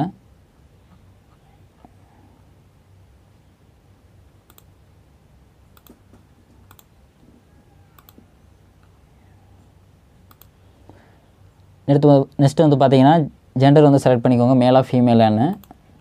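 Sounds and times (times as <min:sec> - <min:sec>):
faint low hum: 0:00.0 - 0:16.0
computer mouse clicks: 0:04.4 - 0:04.7, 0:05.7 - 0:06.9, 0:07.9 - 0:08.9, 0:10.2 - 0:10.6, 0:15.5 - 0:15.8.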